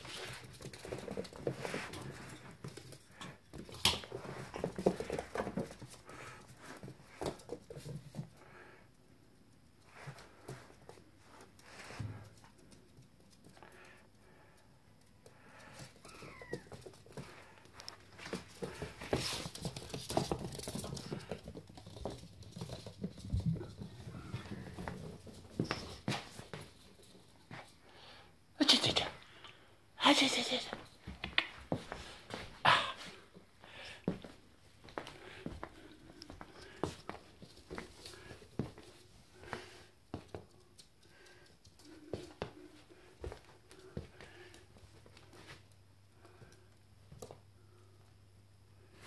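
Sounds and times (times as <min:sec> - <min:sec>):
scuffling paws: 0:00.0 - 0:09.0, 0:09.8 - 0:27.8, 0:30.7 - 0:47.5
puppy claws clicking on floor: 0:12.3 - 0:27.2
puppy noises: 0:15.3 - 0:21.6.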